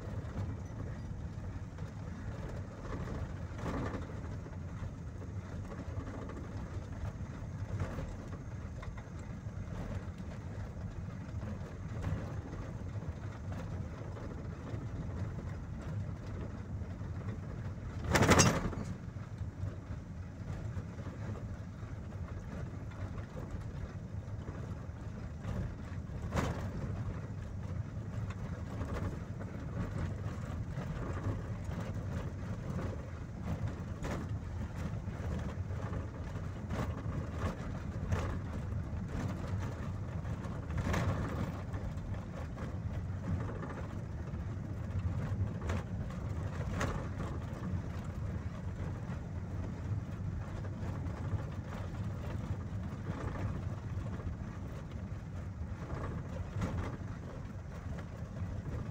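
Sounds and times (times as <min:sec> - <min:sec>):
vehicle engine and tyre rumble: 0:00.0 - 0:58.9
light knock or rattle: 0:18.0 - 0:19.1.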